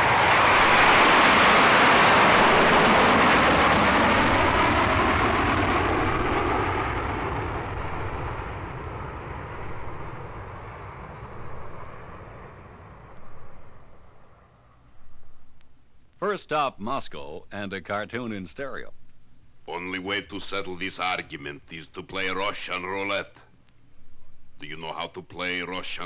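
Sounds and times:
jet aircraft engine noise: 0.0 - 14.4.

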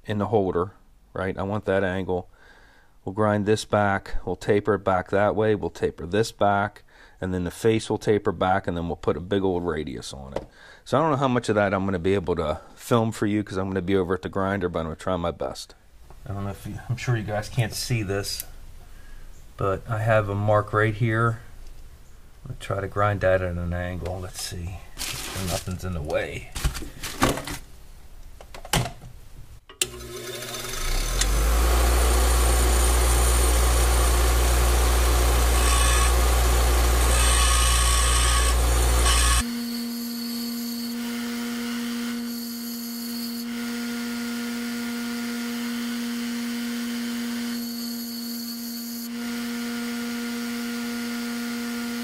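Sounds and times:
grinder motor hum: 29.8 - 52.0
steel grinding on abrasive wheel: 29.9 - 39.5.

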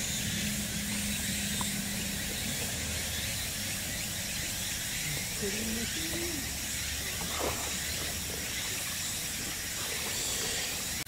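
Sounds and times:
low hum: 0.0 - 11.0
outdoor background hiss: 0.0 - 11.0.

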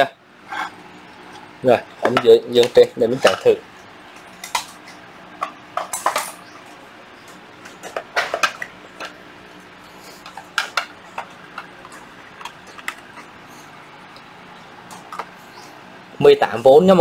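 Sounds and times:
power tools clattering on floor: 5.8 - 6.4.

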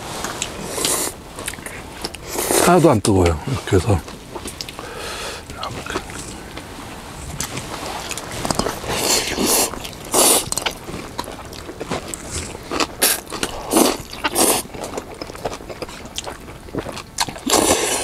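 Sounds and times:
chewing and biting: 7.4 - 18.0.

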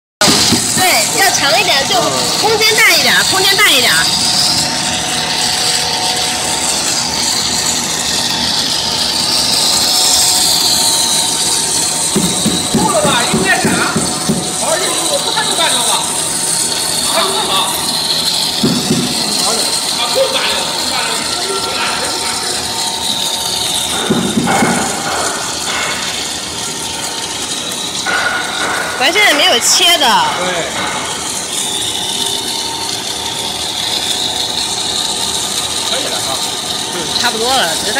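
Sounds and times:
extruder machine din with whine: 0.2 - 37.9.

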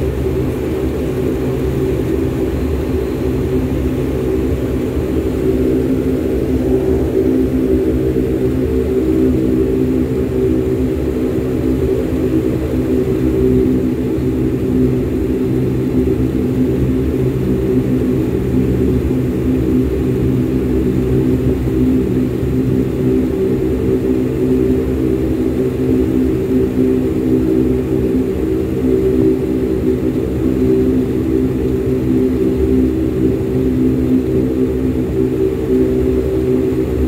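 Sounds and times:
airliner engines droning in cabin: 0.0 - 37.0.

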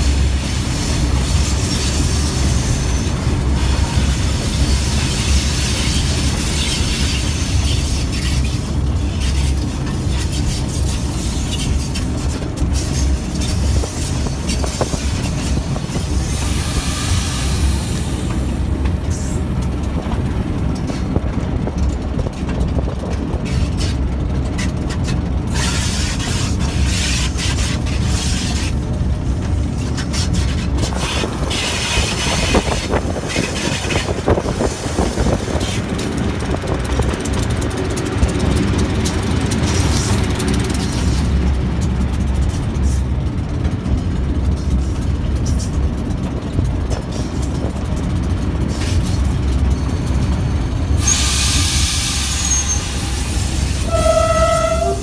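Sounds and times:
diesel locomotive running: 0.0 - 55.0
wheels rumbling on track: 0.0 - 55.0.

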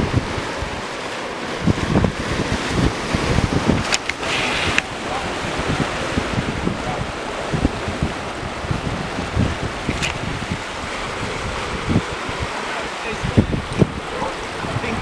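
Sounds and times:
surf on rocks: 0.0 - 15.0
wind buffeting microphone: 0.0 - 15.0.

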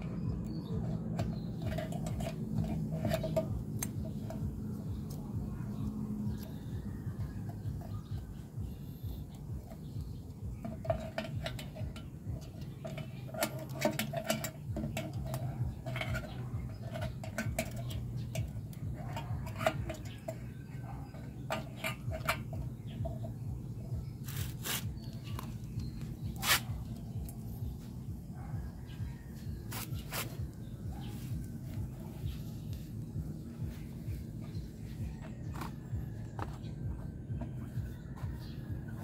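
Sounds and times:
steady low hum: 0.0 - 39.0
clicks and clatter of plastic parts: 10.6 - 23.3.

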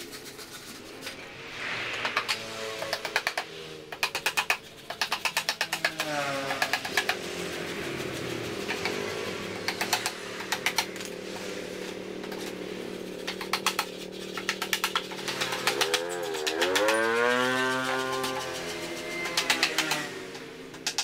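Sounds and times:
hammer tapping on bamboo: 2.0 - 9.0, 9.6 - 11.1, 13.2 - 21.0.

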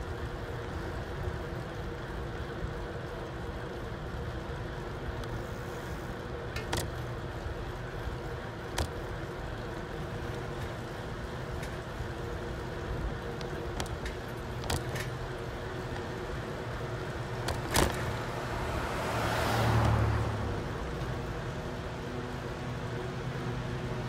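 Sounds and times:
vehicle road noise: 0.0 - 24.0
sharp clicks or rattles: 13.4 - 15.3, 17.4 - 18.2.

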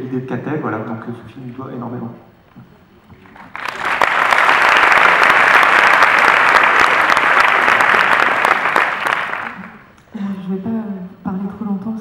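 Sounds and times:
audience applauding: 3.2 - 9.9.

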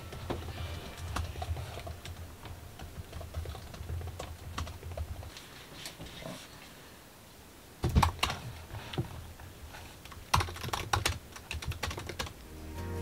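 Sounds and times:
laptop keyboard typing: 0.0 - 5.3, 10.0 - 12.4.

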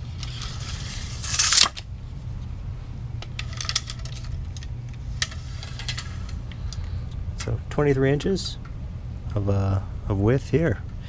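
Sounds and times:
metallic clicks of tape measure: 0.2 - 1.8
tape measure scraping on wood: 0.2 - 1.8.

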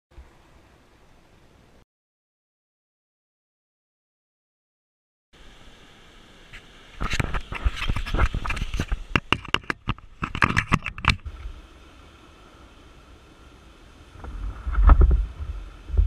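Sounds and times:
faint steady hiss: 0.1 - 1.8, 5.4 - 16.0
camera handling clicks and knocks: 7.1 - 11.2.

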